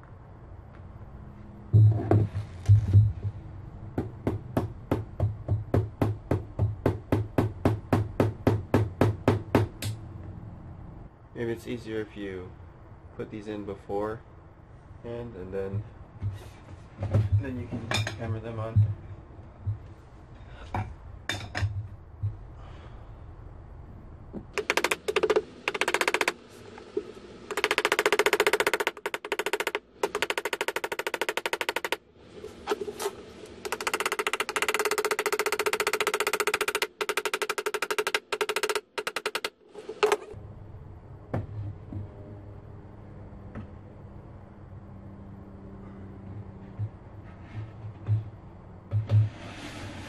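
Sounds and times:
rapid mechanical tapping: 0:24.4 - 0:32.0, 0:32.7 - 0:40.3
power tool hammering nails: 0:24.5 - 0:32.0, 0:33.5 - 0:40.3.

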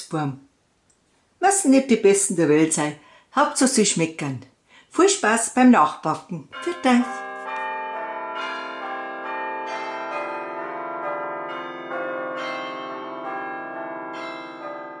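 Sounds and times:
bells ringing: 0:06.5 - 0:15.0.

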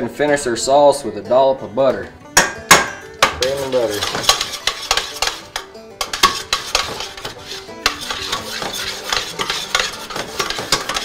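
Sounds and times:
whisk clinking in metal saucepan: 0:03.4 - 0:11.0.

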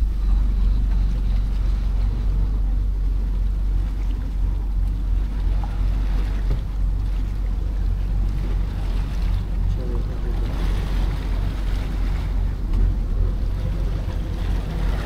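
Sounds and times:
boat engine rumbling: 0:00.0 - 0:15.0.

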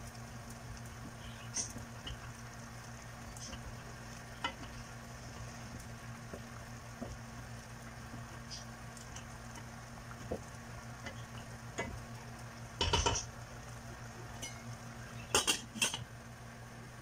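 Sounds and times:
wooden spoon stirring sauce: 0:03.3 - 0:12.1.

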